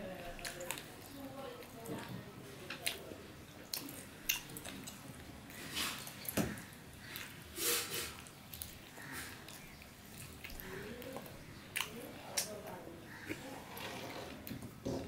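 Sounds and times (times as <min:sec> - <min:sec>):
wet chewing and smacking: 0:00.1 - 0:07.4, 0:08.1 - 0:13.5.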